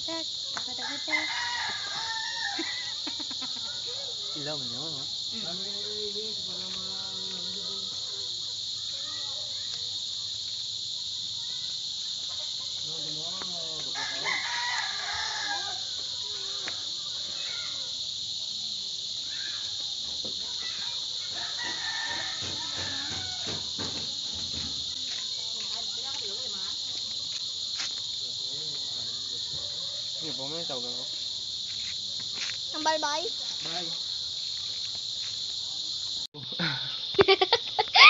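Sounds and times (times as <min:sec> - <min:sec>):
insect chirring: 0:00.0 - 0:38.0
rooster crowing: 0:00.8 - 0:05.2, 0:13.8 - 0:18.1, 0:19.2 - 0:24.7.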